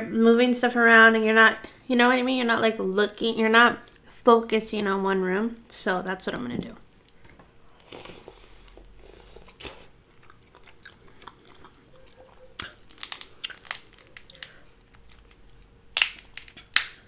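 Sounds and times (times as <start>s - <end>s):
person chewing crab meat: 7.1s - 17.0s
crab shell snapping: 12.6s - 17.0s.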